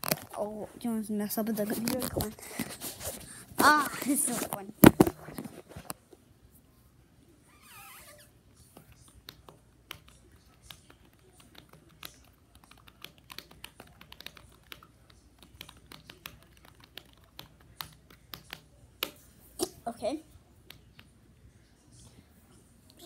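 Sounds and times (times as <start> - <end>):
computer keyboard clicks: 8.9 - 19.2.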